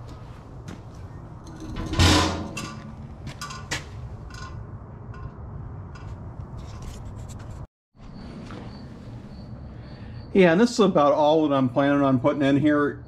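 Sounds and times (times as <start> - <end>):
sharp clicks and knocks: 1.4 - 7.4
loud metallic clunk: 1.5 - 5.3.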